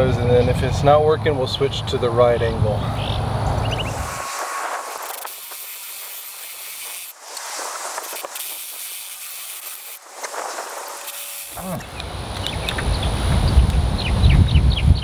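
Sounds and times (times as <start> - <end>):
drill bit grinding into metal: 4.0 - 12.0.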